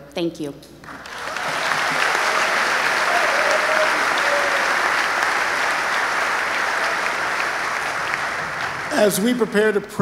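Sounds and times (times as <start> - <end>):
large audience applauding: 0.8 - 9.6.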